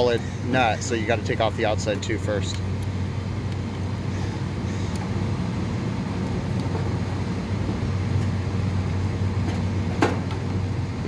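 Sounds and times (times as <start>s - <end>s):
machinery hum and rumble: 0.0s - 11.0s.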